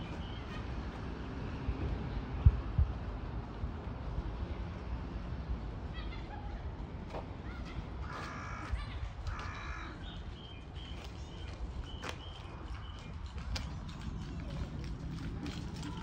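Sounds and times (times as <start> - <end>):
crow cawing: 8.0 - 10.0.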